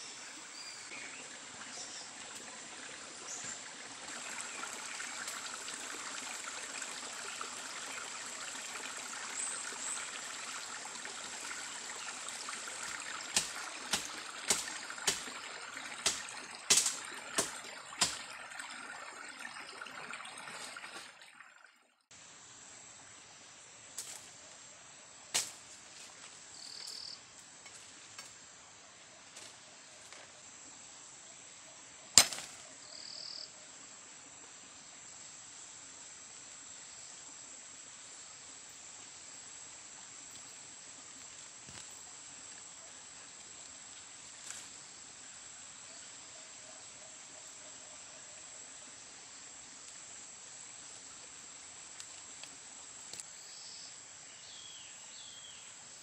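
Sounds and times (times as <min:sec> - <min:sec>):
insects droning: 0:22.1 - 0:56.0.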